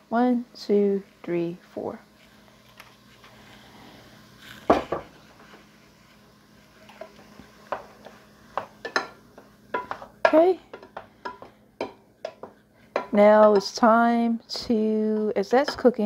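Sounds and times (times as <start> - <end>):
spatula stirring in a frying pan: 2.0 - 16.0
spatula scraping and tapping pan: 4.5 - 14.0, 14.8 - 16.0.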